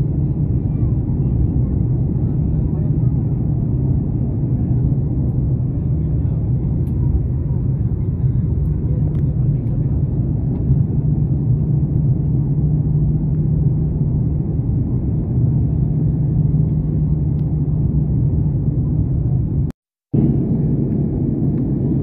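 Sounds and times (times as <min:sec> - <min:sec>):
jet engine rumble in cabin: 0:00.0 - 0:22.0.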